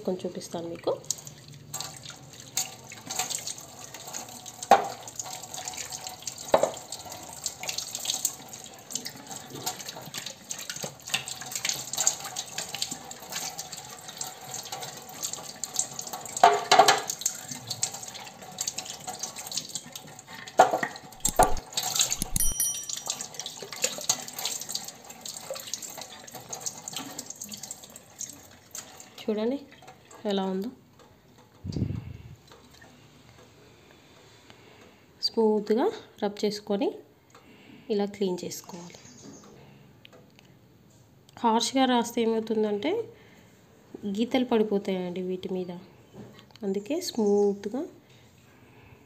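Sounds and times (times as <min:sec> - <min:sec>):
tap water running: 0:01.0 - 0:31.1.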